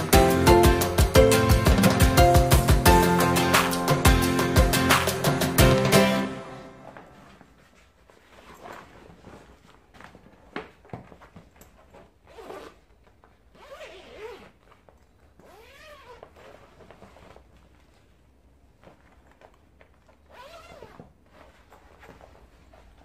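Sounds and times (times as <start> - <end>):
zipper being pulled: 8.2 - 9.7, 11.9 - 17.7, 19.1 - 23.0.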